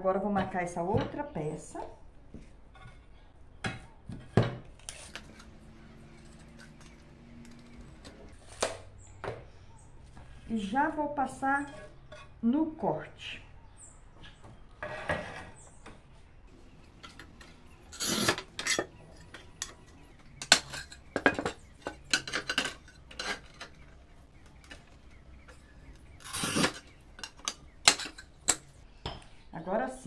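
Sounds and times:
cutting wheel scraping tile: 4.8 - 8.6, 16.6 - 25.2, 25.9 - 28.6.

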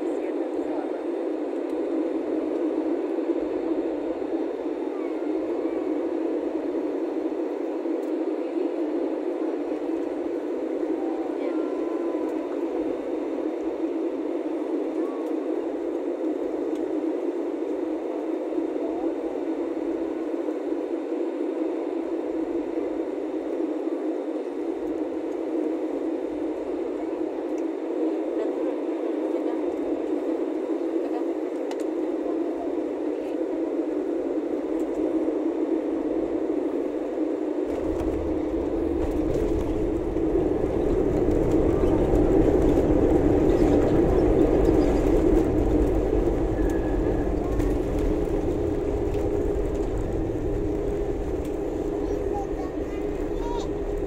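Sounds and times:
jet engines and airflow rushing: 0.0 - 54.0
wheels rumbling on runway: 37.7 - 54.0.

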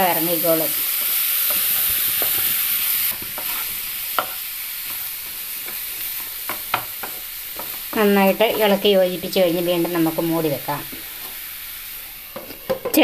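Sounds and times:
mushrooms sizzling in a pan: 0.0 - 13.0
spatula tapping and scraping pan: 1.0 - 8.9, 12.3 - 13.0.

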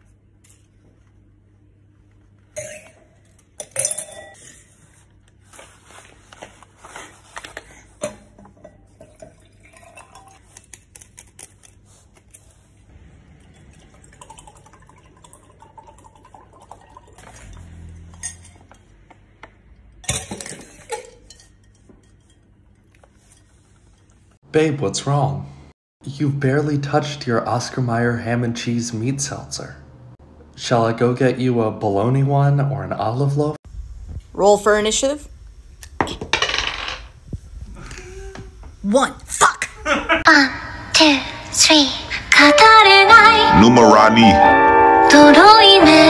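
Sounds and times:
liquid sloshing: 8.2 - 11.2, 13.0 - 18.6.

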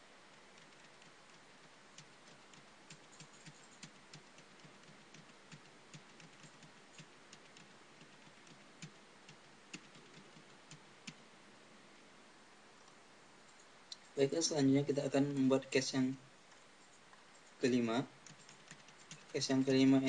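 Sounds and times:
low steady hiss: 0.0 - 20.0
keyboard typing: 0.3 - 11.2, 16.8 - 20.0.

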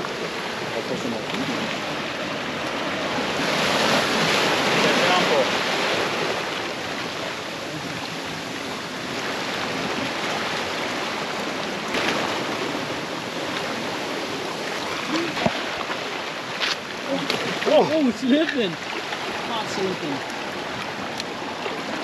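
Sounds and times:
surf churning among rocks: 0.0 - 22.0
person's voice: 15.1 - 15.5, 17.0 - 18.8.

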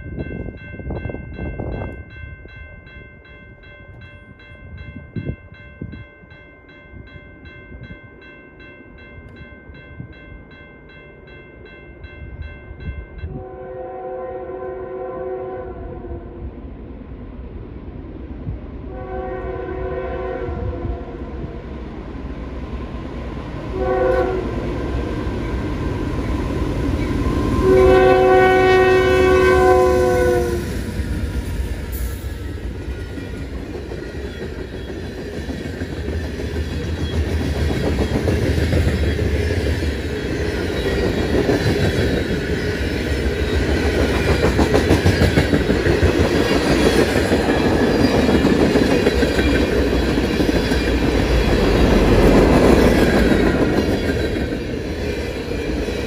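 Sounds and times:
train rumbling: 0.0 - 56.0
locomotive air horn blasts: 13.3 - 16.3, 18.9 - 21.2, 23.7 - 24.8, 27.5 - 30.8.

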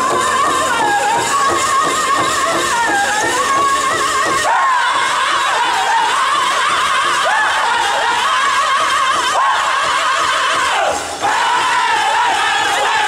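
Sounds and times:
men singing in high voices: 0.0 - 13.0.

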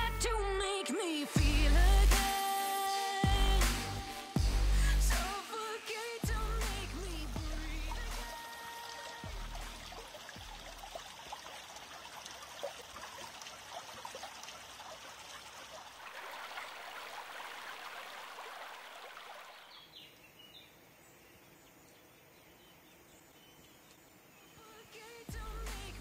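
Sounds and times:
water rushing in channel: 1.4 - 20.0.

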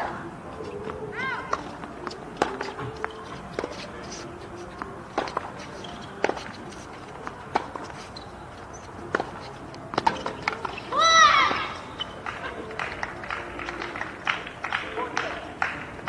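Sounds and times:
footsteps on hard court: 0.6 - 12.7
racket hitting tennis ball: 1.4 - 8.1, 9.0 - 11.6.

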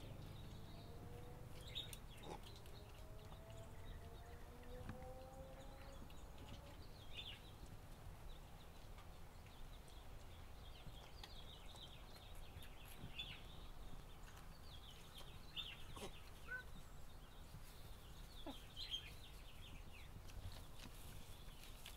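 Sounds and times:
low steady rumble: 0.0 - 14.8.

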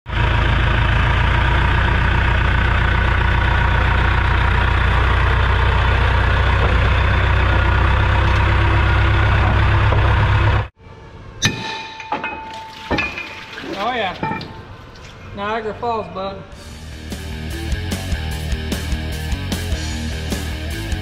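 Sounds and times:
diesel engine running: 0.1 - 10.8, 16.6 - 21.0.

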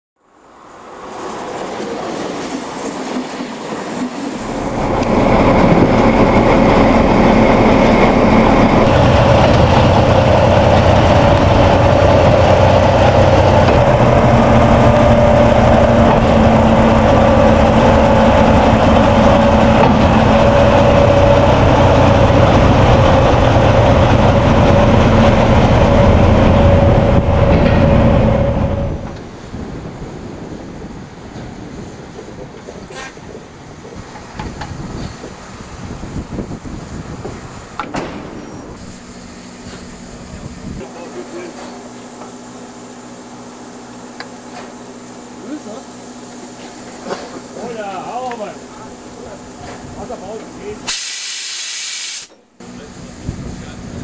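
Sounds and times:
train rumbling on rails: 0.2 - 54.0.

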